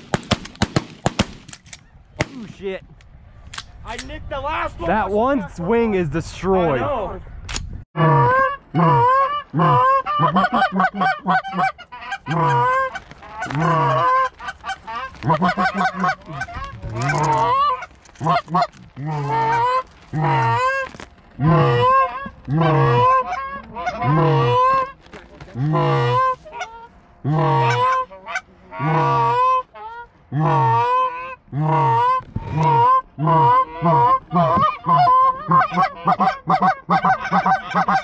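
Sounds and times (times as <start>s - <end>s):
goose call clucks: 8.0s - 20.8s, 21.4s - 38.0s
goose call honks: 8.0s - 20.8s, 21.4s - 38.0s.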